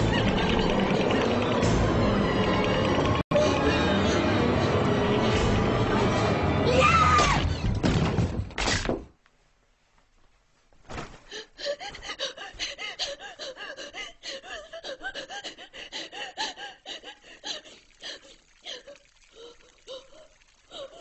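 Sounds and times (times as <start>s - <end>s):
person gasping and whimpering: 11.2s - 21.0s.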